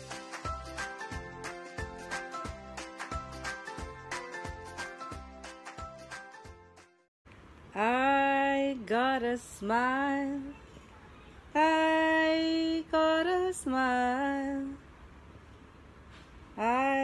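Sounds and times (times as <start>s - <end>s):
woman singing wordlessly: 7.7s - 10.6s, 11.5s - 14.8s, 16.6s - 17.0s.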